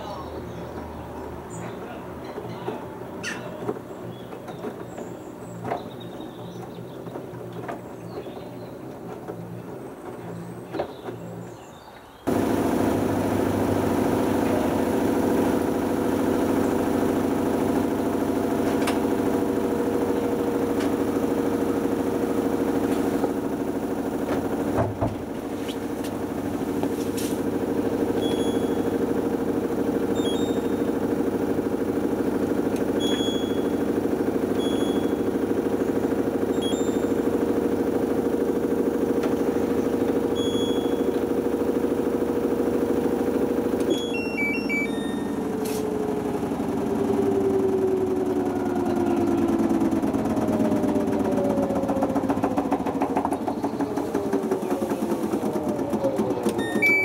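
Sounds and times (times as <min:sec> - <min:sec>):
washing machine motor hum: 0:12.3 - 0:57.0
short high beeps: 0:43.9 - 0:45.4, 0:56.6 - 0:57.0.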